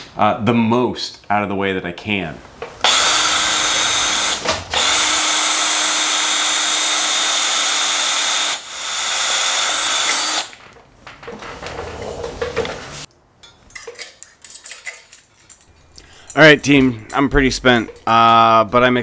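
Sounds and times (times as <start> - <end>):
cordless drill boring metal: 2.8 - 10.6
faint metal clinks: 13.4 - 18.6.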